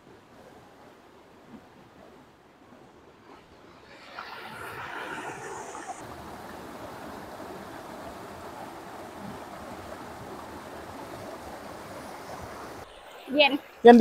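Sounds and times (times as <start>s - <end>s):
stream water rushing over rocks: 3.8s - 14.0s.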